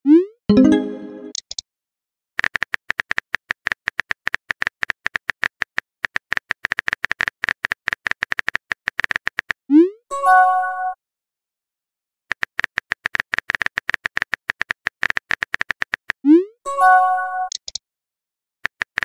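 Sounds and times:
keyboard typing clicks: 17.5 - 17.8.

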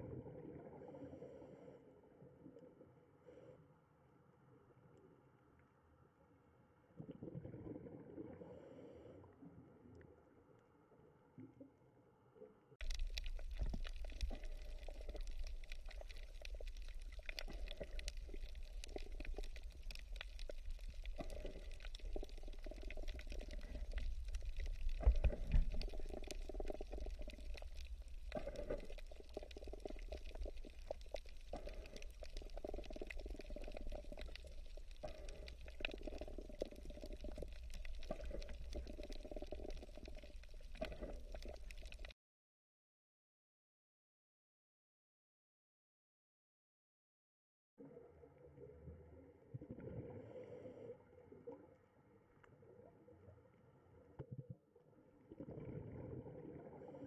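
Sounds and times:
aquarium water bubbling: 12.8 - 42.2, 54.2 - 57.0.

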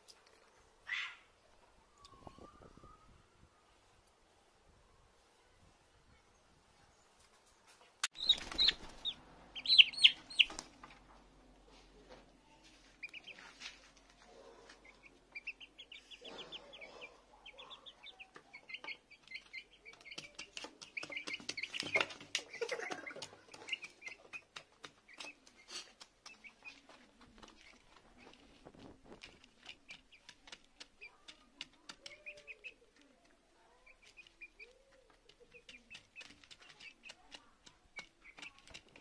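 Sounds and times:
chicks peeping and chirping: 8.1 - 11.0, 12.6 - 39.0
beaks tapping on plastic dish: 18.4 - 25.5, 34.1 - 39.0.

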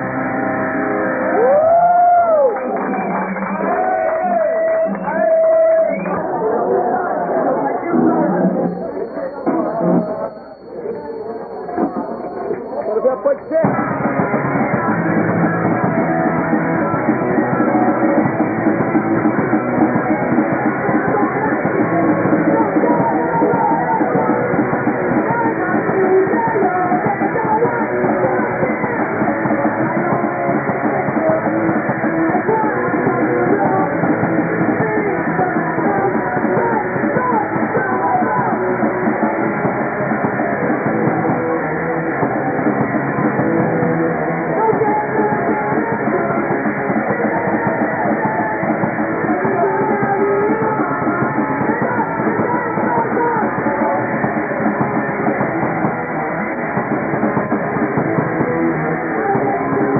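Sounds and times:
electric guitars: 0.0 - 59.9
drum kit: 13.6 - 59.9.

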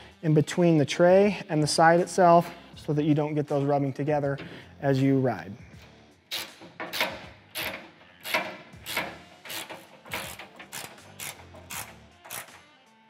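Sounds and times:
socket ratchet clicking: 6.3 - 12.7.

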